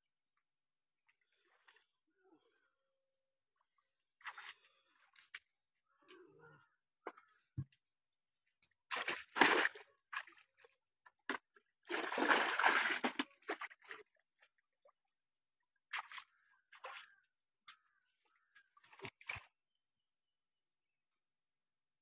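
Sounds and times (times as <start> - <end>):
water splashing and sloshing: 3.6 - 6.4, 8.6 - 19.6.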